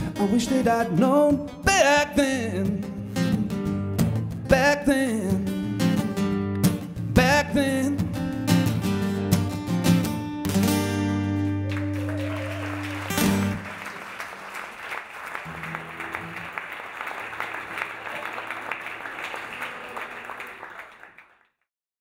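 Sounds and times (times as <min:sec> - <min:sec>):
audience applauding: 0:11.3 - 0:21.7.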